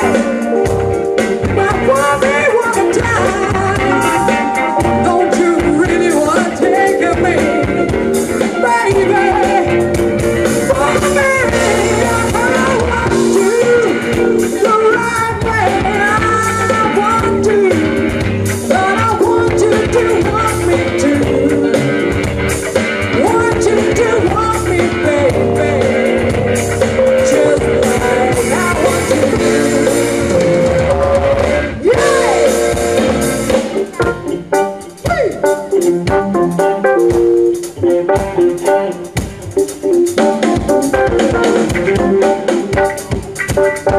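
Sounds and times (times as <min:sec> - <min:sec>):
electric guitars and drums: 0:00.0 - 0:43.9
woman singing: 0:01.4 - 0:09.8, 0:10.6 - 0:18.1, 0:18.7 - 0:22.0, 0:23.1 - 0:26.4, 0:27.0 - 0:30.4, 0:31.8 - 0:32.8.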